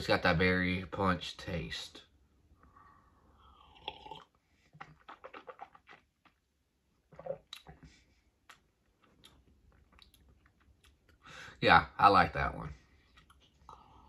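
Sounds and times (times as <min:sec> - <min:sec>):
sipping and swallowing: 0:03.4 - 0:11.2
wet mouth clicks and smacks: 0:04.8 - 0:06.4, 0:07.1 - 0:11.2.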